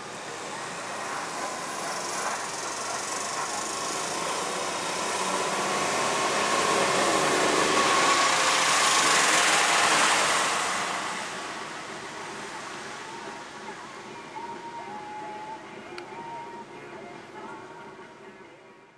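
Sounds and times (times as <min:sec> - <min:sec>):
tyres hissing on wet road: 0:00.0 - 0:14.2.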